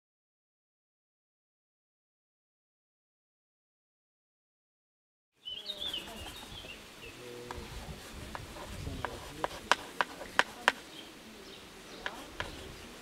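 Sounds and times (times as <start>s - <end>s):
chalk tapping and scratching on slate: 5.8s - 6.8s, 7.5s - 10.9s, 12.0s - 12.8s.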